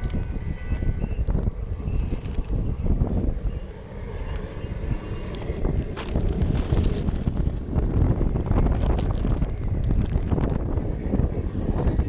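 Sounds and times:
wind buffeting microphone: 0.0s - 12.0s
plastic bag crinkling: 5.3s - 10.6s.

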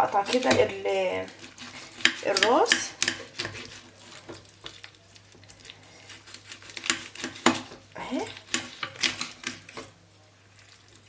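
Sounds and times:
knife clicking and scraping fish: 0.2s - 4.8s, 6.0s - 9.9s.

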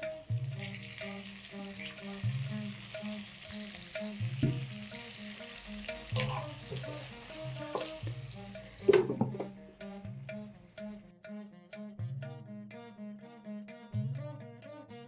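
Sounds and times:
vegetables sizzling in oil: 0.0s - 10.7s
spatula knocking pan: 2.2s - 10.5s
glass lid clattering on pan: 6.2s - 8.2s, 8.8s - 9.6s.

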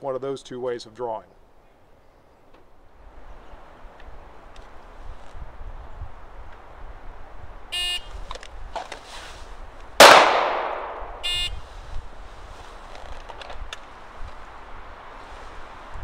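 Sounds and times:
pistol shot: 10.0s - 11.2s
shot timer beep: 11.2s - 11.6s.

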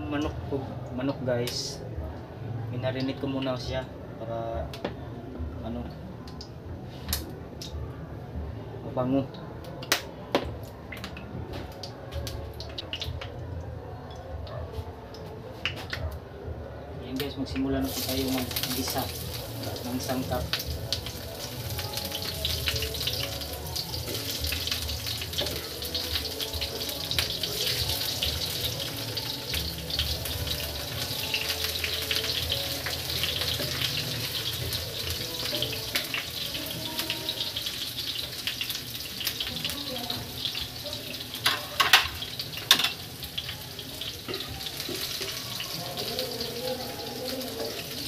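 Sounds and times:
onion sizzling in hot oil: 17.5s - 48.0s.

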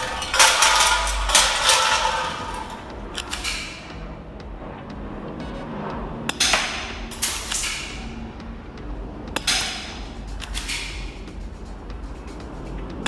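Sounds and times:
airsoft pistol clacks: 9.4s - 11.3s.

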